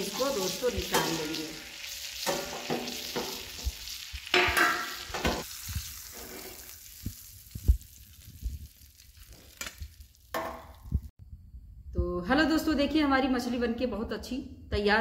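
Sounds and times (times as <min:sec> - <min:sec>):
metal spatula scraping: 0:00.0 - 0:06.9
hot oil sizzling: 0:00.0 - 0:11.1.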